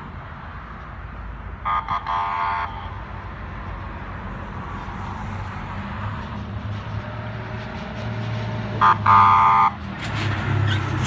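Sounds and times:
road traffic rumble: 0:00.0 - 0:11.0
vehicle horn toots: 0:01.7 - 0:02.9, 0:08.8 - 0:09.8.

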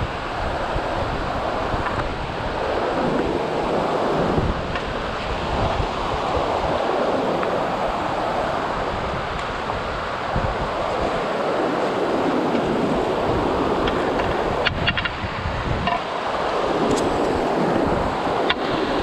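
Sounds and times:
river rapids rushing over boulders: 0:00.0 - 0:19.0
wind buffeting microphone: 0:00.0 - 0:19.0.

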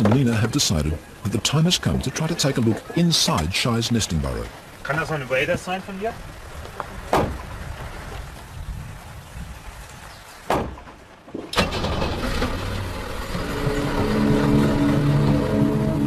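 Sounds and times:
sharp clunks: 0:10.5 - 0:11.6
car engine starting and running: 0:11.5 - 0:16.0.

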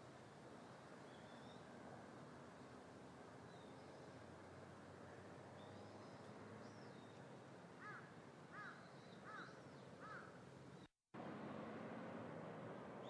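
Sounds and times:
small birds chirping: 0:03.4 - 0:04.2, 0:05.5 - 0:10.9
crow cawing: 0:07.8 - 0:10.3.

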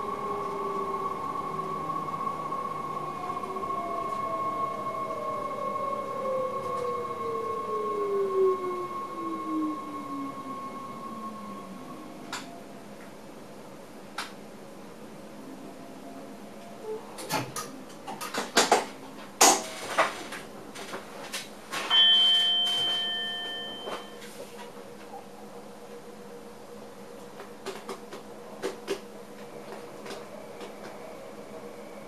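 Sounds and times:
chime-like tone: 0:21.9 - 0:24.3.

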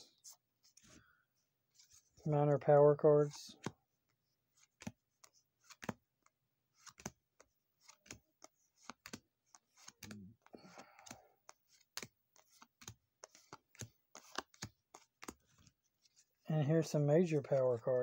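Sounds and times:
card rustle: 0:03.6 - 0:10.2, 0:10.8 - 0:16.4
cards clicking as flipped: 0:04.6 - 0:10.2, 0:11.0 - 0:15.7.

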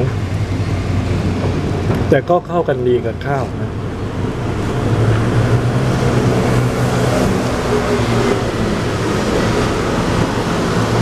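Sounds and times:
machinery rumble and hum: 0:00.0 - 0:11.0.

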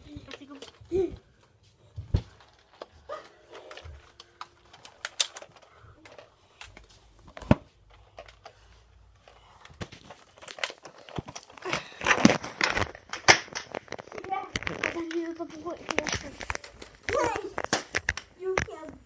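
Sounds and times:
rustling handling noise: 0:00.0 - 0:19.0
sharp clicks and knocks: 0:12.6 - 0:19.0.

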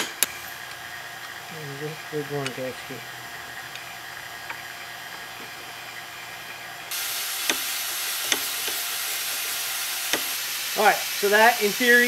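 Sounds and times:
steady hiss: 0:06.9 - 0:12.0
ratchet wrench clicking: 0:07.4 - 0:09.5, 0:10.1 - 0:10.4.

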